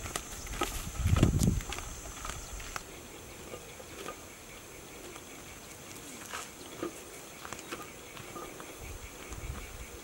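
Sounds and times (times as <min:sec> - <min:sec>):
footsteps rustling in grass: 0:00.0 - 0:02.9, 0:05.8 - 0:09.7
high insect chirring: 0:00.0 - 0:10.0.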